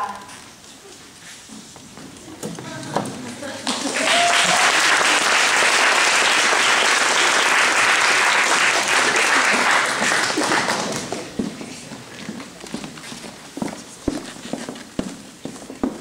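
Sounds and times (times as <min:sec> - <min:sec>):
audience applauding: 0:03.6 - 0:11.3.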